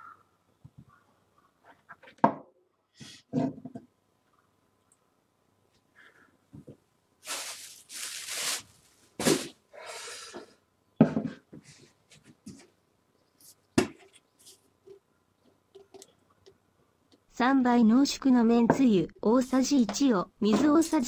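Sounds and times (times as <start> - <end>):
short rustling hisses: 7.2 - 10.4.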